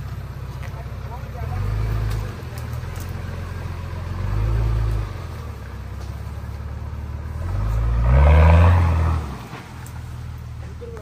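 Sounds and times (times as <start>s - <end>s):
engine revving hard: 1.4s - 2.6s, 4.0s - 5.3s, 7.3s - 9.6s.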